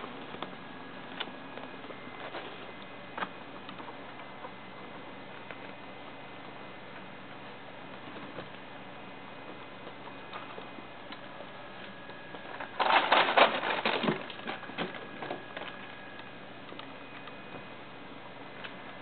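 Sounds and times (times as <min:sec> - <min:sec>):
ferret clicks and patter: 0:00.0 - 0:05.8
scrabbling and rustling: 0:11.9 - 0:15.9.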